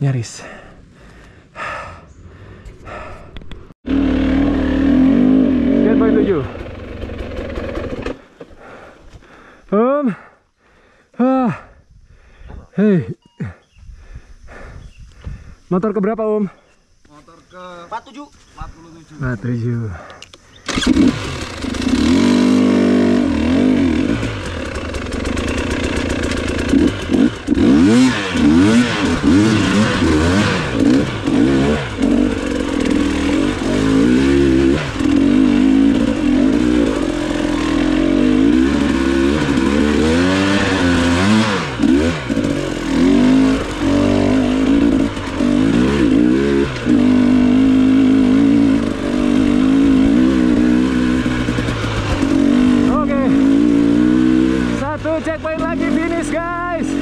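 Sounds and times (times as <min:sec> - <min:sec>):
dirt bike engine revving: 0:03.8 - 0:08.8, 0:20.7 - 0:57.0.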